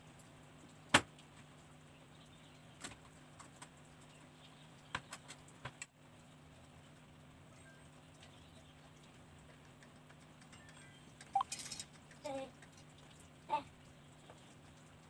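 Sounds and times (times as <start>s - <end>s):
low steady hum: 0.0s - 15.0s
metal frame parts clicking and tapping: 9.6s - 12.8s.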